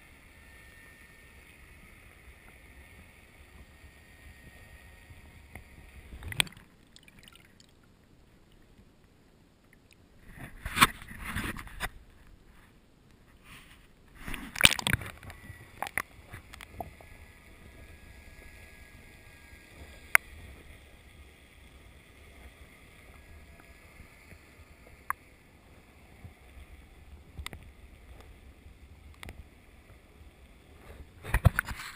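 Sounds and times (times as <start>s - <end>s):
water splashing: 6.0s - 8.8s, 14.2s - 17.7s
muffled underwater hiss: 10.1s - 31.9s.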